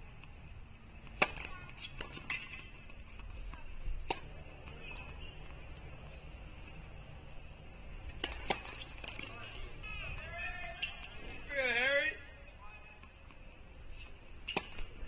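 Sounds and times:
tennis ball bouncing on hard court: 1.0 - 2.7, 8.1 - 9.4, 14.4 - 15.0
tennis ball hit by rackets: 1.0 - 2.7, 3.5 - 5.0, 8.1 - 9.5, 14.4 - 15.0.

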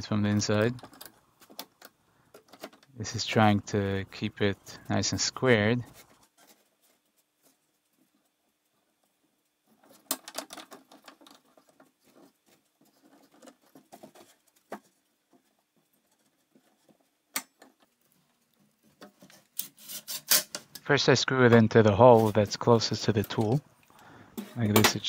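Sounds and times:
scratchy rubs: 4.6 - 10.1, 10.8 - 17.2, 18.0 - 20.5.

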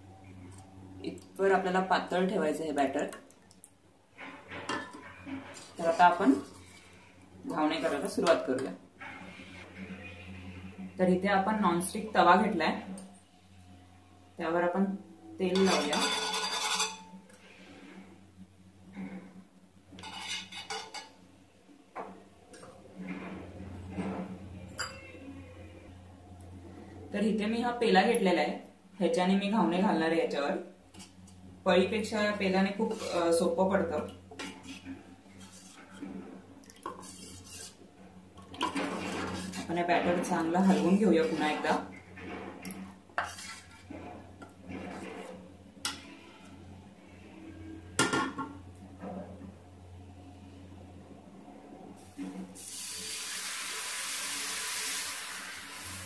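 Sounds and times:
cup scraping batter in bowl: 32.7 - 33.4, 34.4 - 37.9, 38.6 - 45.4.

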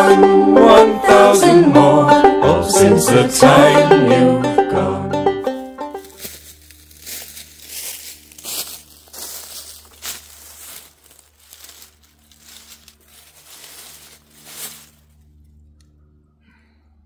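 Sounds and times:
footsteps crunching dry leaves: 5.5 - 15.5
person rustling and shuffling: 5.5 - 15.5.

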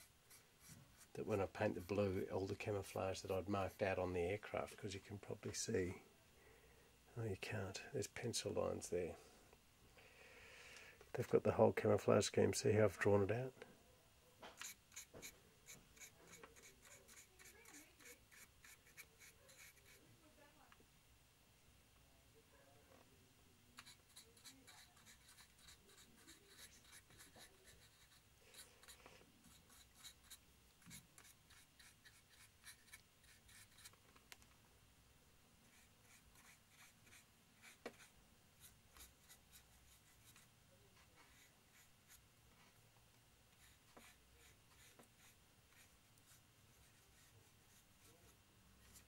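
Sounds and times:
scratchy paintbrush strokes: 0.0 - 4.0, 14.6 - 20.0, 23.8 - 34.0, 35.6 - 42.8, 43.6 - 49.0.

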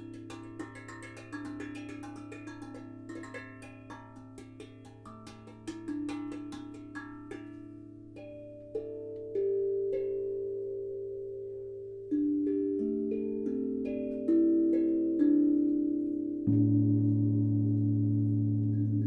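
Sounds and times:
steel tongue drum notes: 0.0 - 19.0
low hum: 16.5 - 19.0.

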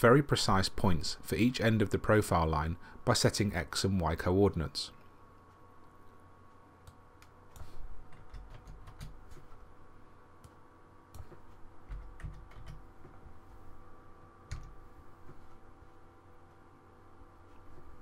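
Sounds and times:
faint steady hum: 0.0 - 18.0
keyboard keys tapping: 7.2 - 9.6, 11.2 - 13.2, 14.5 - 14.8.

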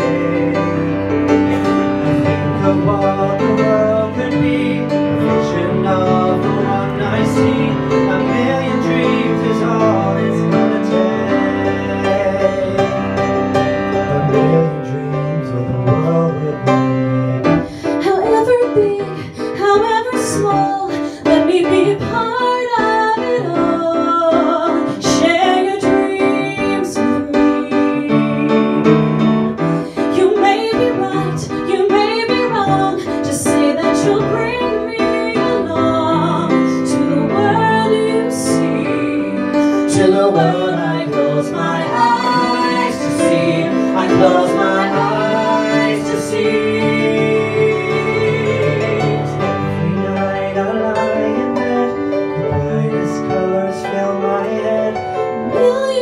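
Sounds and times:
man singing: 0.0 - 17.8, 21.4 - 56.0
instrumental accompaniment: 0.0 - 56.0
woman singing: 17.6 - 28.8, 29.9 - 49.2, 55.4 - 56.0.

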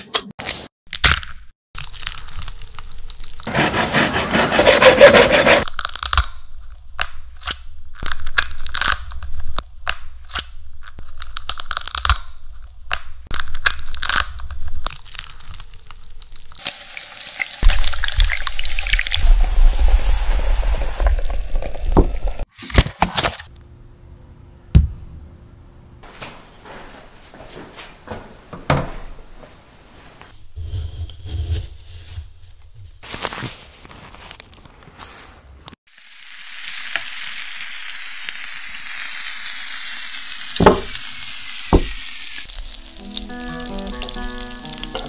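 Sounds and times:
rice sizzling in a pan: 16.6 - 17.7, 35.9 - 45.0
knock on baking tray: 40.6 - 40.9.

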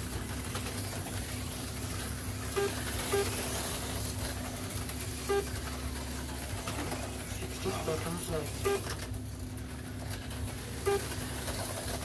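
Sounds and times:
slot car motors whirring: 0.0 - 12.0
short pitched blips: 2.6 - 3.3, 5.3 - 5.5.

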